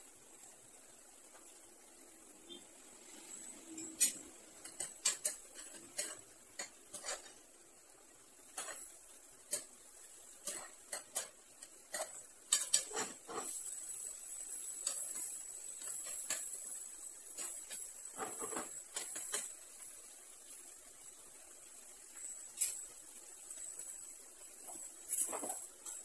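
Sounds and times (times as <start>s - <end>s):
frying sizzle: 0.0s - 26.0s
spatula scraping frying pan: 3.1s - 19.9s.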